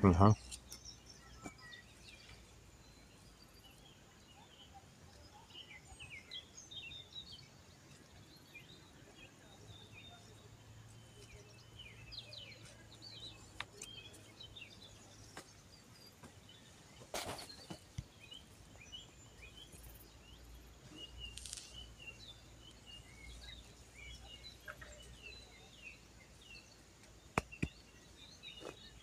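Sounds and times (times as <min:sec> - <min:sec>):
small birds chirping: 0:00.0 - 0:29.0
hands scuffing garden soil: 0:21.0 - 0:21.9.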